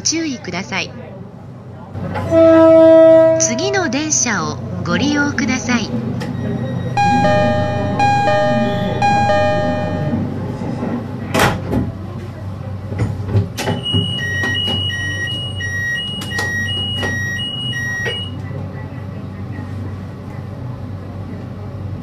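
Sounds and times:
high two-tone beep: 0:07.0 - 0:10.2
two-note door chime: 0:07.0 - 0:10.3.

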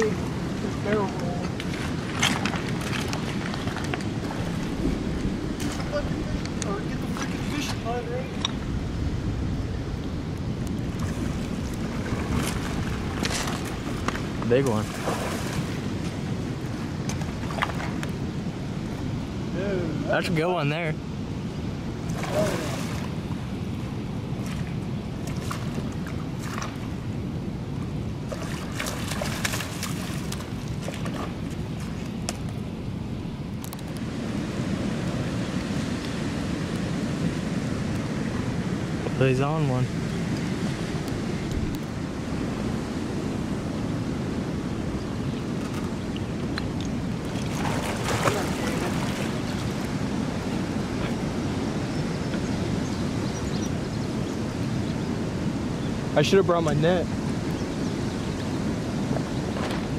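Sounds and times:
river current rushing: 0:00.0 - 0:59.9
wind on microphone: 0:00.0 - 0:59.9
river water rushing over rocks: 0:45.3 - 0:51.6.

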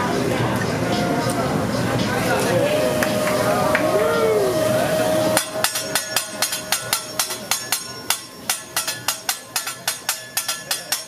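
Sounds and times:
steady tone: 0:01.1 - 0:08.6.

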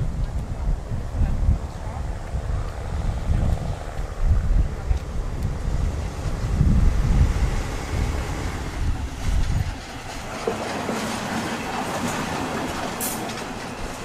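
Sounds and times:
railcar low rumble: 0:00.0 - 0:14.0
train wheels clattering on rails: 0:07.4 - 0:14.0.

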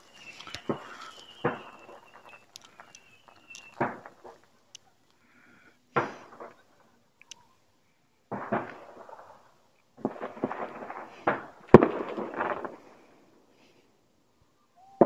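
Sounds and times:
firework whistle: 0:00.0 - 0:04.4, 0:10.1 - 0:12.9
firecracker pops: 0:00.0 - 0:04.5, 0:05.9 - 0:06.7, 0:08.3 - 0:09.4, 0:10.0 - 0:13.0
firework bangs: 0:00.0 - 0:04.5, 0:08.3 - 0:13.2.

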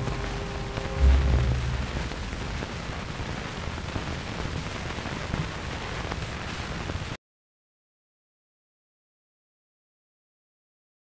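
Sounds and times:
record surface hiss and crackle: 0:00.0 - 0:07.2.

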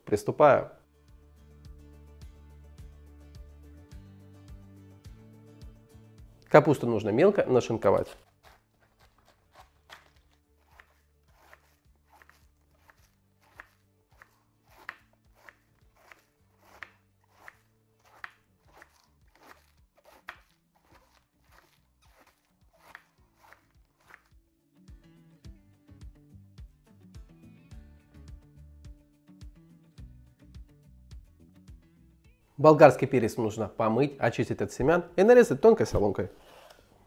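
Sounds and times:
faint background music: 0:00.0 - 0:26.1, 0:27.1 - 0:37.0
knife slicing cabbage on board: 0:08.2 - 0:24.4.

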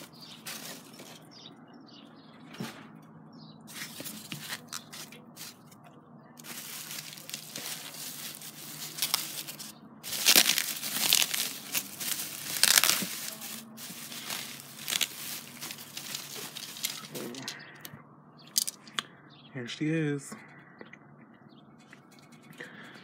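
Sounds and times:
bubble wrap crinkling: 0:00.0 - 0:01.2, 0:03.7 - 0:05.8, 0:06.4 - 0:17.9.

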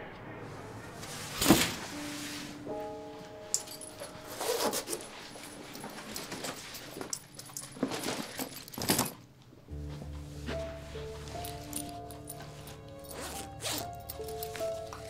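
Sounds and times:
low music drone: 0:00.0 - 0:05.9, 0:09.7 - 0:15.0
sustained music notes: 0:00.0 - 0:06.1, 0:09.7 - 0:15.0
rustling and light clinking: 0:03.5 - 0:15.0.

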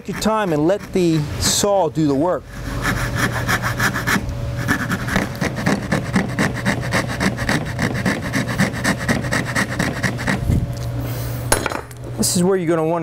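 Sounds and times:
hand saw cutting wood: 0:00.0 - 0:01.6, 0:02.5 - 0:10.4.

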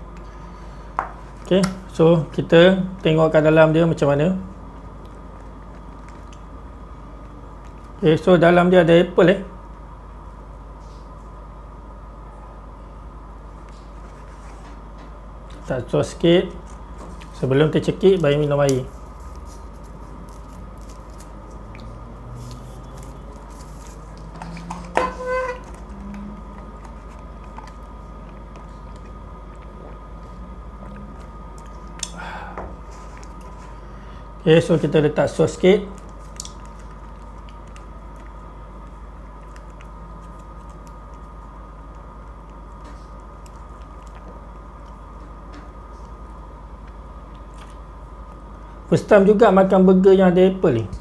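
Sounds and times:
straw squeaking: 0:22.5 - 0:29.1.

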